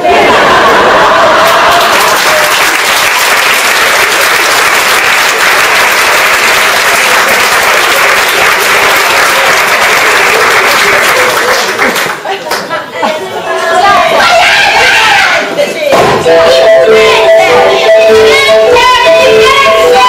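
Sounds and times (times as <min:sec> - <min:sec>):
audience applauding: 0:00.6 - 0:12.4.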